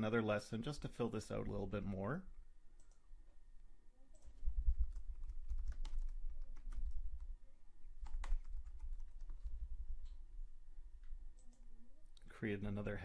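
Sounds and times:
keyboard typing: 0:04.1 - 0:07.3, 0:08.0 - 0:10.2.

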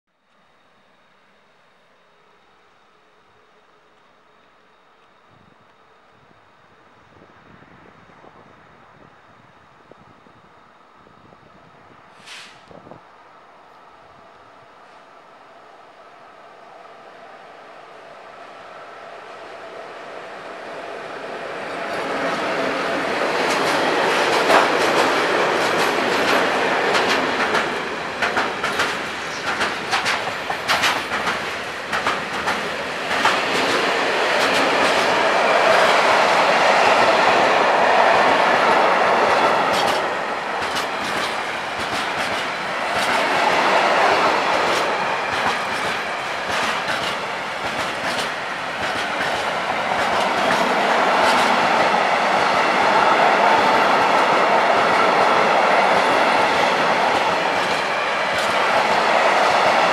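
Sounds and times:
train wheels rumbling on rails: 0:19.0 - 0:59.9.

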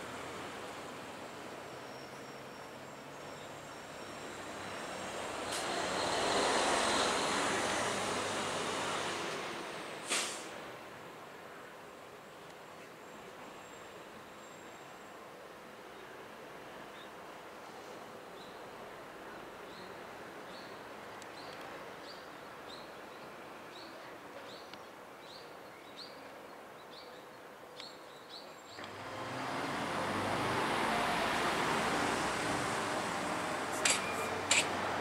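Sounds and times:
road traffic rumble: 0:00.0 - 0:24.2, 0:28.8 - 0:35.0
sharp high click: 0:33.8 - 0:34.8.

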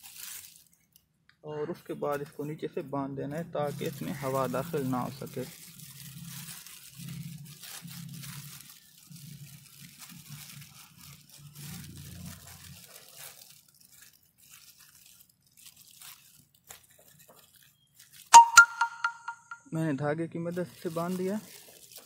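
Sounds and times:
plastic bag crinkling: 0:00.0 - 0:01.1, 0:03.3 - 0:18.4, 0:20.5 - 0:22.0.

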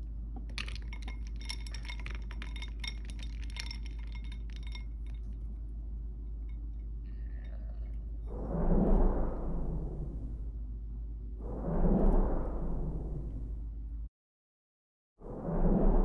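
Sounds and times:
steady low hum: 0:00.0 - 0:14.1
plastic doll and ice clinking: 0:00.4 - 0:05.4.

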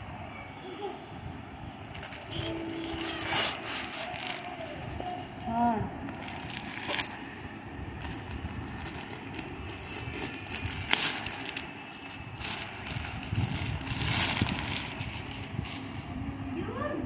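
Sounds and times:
sharp plastic crackle: 0:01.8 - 0:05.3, 0:06.0 - 0:16.5
plastic packaging rustling: 0:01.9 - 0:05.2, 0:06.0 - 0:16.2.

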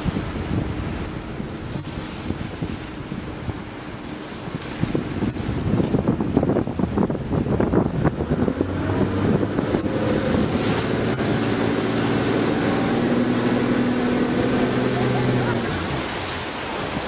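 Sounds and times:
boat engine humming: 0:00.0 - 0:17.0
water rushing past hull: 0:00.0 - 0:17.0
wind buffeting microphone: 0:00.0 - 0:17.0.

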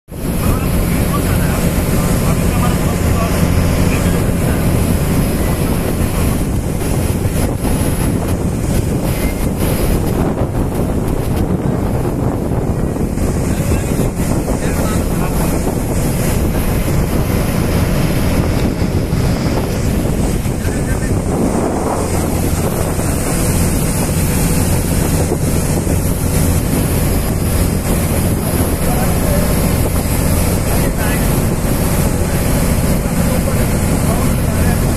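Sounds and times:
water rushing past hull: 0:00.0 - 0:34.9
wind buffeting microphone: 0:00.1 - 0:34.9
ferry engine running: 0:00.2 - 0:34.9.

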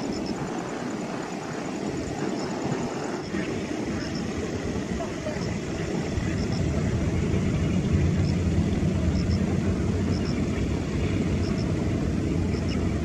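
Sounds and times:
distant jet engines rumbling: 0:00.0 - 0:13.0.

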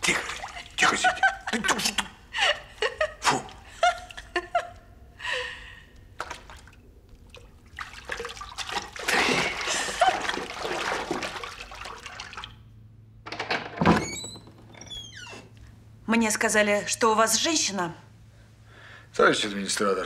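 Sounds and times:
bathwater splashing: 0:00.0 - 0:02.0, 0:06.2 - 0:12.7
low steady hum: 0:00.0 - 0:20.0.

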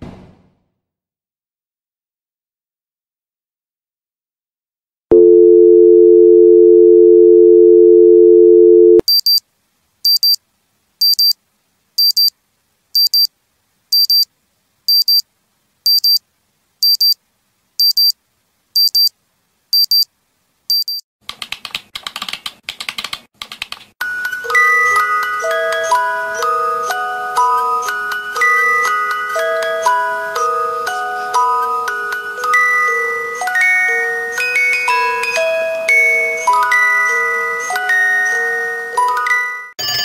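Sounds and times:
telephone dial tone: 0:05.1 - 0:09.0
watch alarm beeping: 0:05.2 - 0:09.4, 0:10.1 - 0:10.4, 0:11.0 - 0:11.4, 0:12.0 - 0:12.3, 0:13.0 - 0:13.3, 0:14.0 - 0:14.3, 0:14.9 - 0:15.2, 0:15.9 - 0:16.2, 0:16.8 - 0:17.2, 0:17.8 - 0:18.2, 0:18.8 - 0:19.1, 0:19.8 - 0:20.1, 0:20.7 - 0:21.0
music box tinkling tune: 0:24.1 - 0:40.0.

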